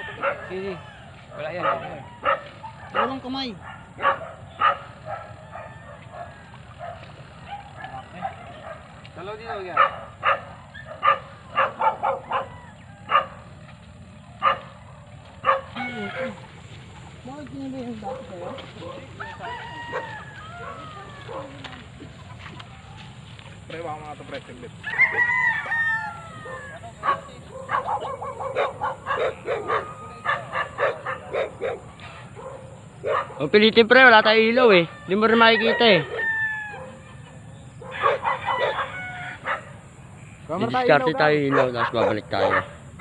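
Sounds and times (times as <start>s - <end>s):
dog barking: 0.0s - 13.5s, 14.4s - 16.4s, 18.0s - 21.8s, 26.4s - 33.6s, 35.6s - 39.8s, 40.7s - 43.0s.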